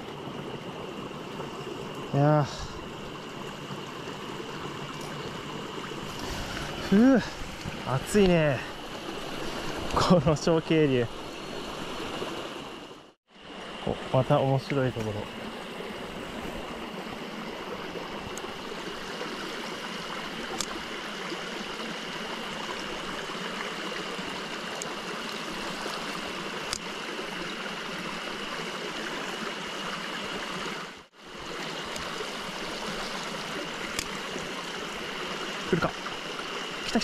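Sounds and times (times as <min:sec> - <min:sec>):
stream babbling over stones: 0:00.0 - 0:37.0.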